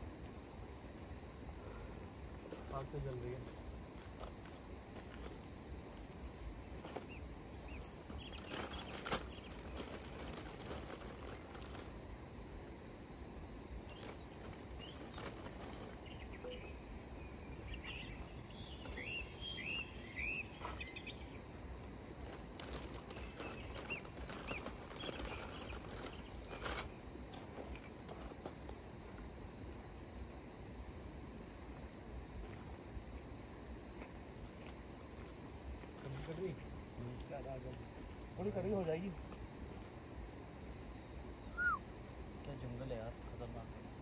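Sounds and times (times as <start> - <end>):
insects droning: 0.0 - 44.0
short bird chirps: 16.1 - 16.9, 41.5 - 41.8.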